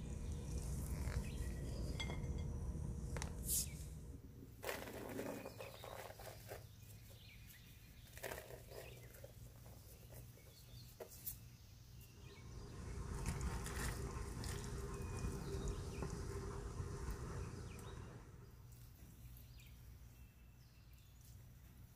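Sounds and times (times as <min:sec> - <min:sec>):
low hum: 0:00.0 - 0:04.6, 0:12.2 - 0:18.6
steady rustling noise: 0:00.0 - 0:19.5.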